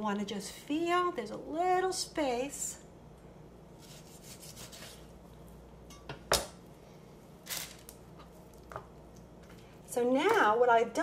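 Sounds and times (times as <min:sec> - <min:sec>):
knife scraping: 0:03.8 - 0:05.1.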